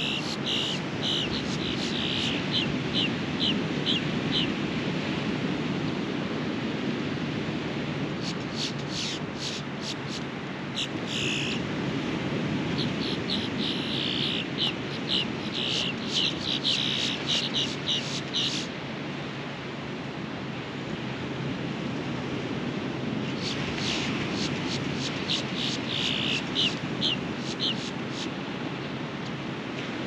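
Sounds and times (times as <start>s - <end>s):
birds chirping: 0.0s - 4.6s, 8.2s - 10.2s, 10.8s - 11.6s, 12.7s - 18.7s, 23.4s - 28.3s
ocean surf washing on beach: 0.0s - 30.0s.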